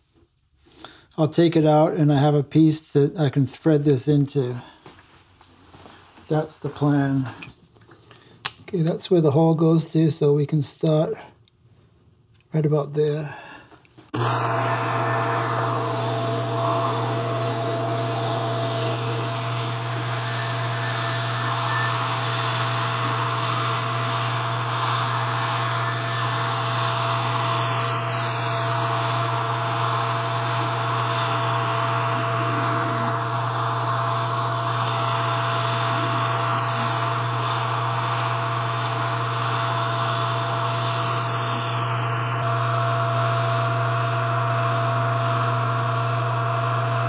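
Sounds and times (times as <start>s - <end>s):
metal lathe motor hum: 14.2s - 47.0s.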